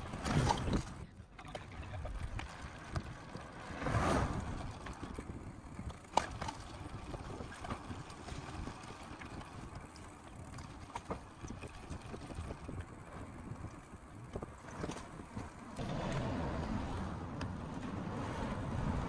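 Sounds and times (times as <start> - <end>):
outdoor background noise: 0.0 - 19.0.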